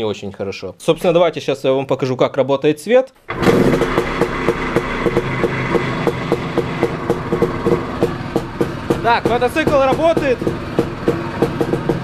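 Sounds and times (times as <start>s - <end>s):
two-stroke motorcycle engine running: 3.3s - 12.0s.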